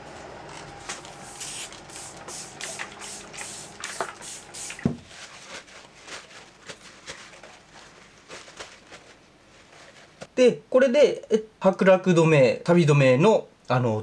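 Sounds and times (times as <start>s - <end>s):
soft brushing strokes: 0.7s - 10.2s.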